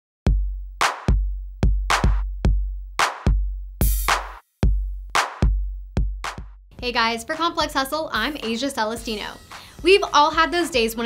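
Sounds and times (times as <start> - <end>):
deep bass kicks: 0.3 - 7.0
sharp claps: 0.8 - 1.2, 1.9 - 2.2, 3.0 - 3.3, 4.0 - 4.4, 5.2 - 5.5, 6.2 - 6.5.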